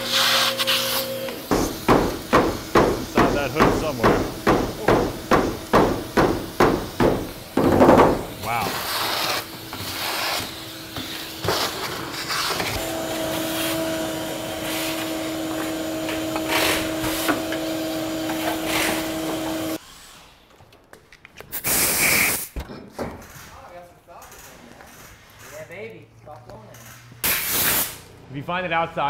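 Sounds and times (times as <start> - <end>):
shop vacuum running: 0.0 - 20.2
nozzle scraping and rattling: 0.1 - 4.5.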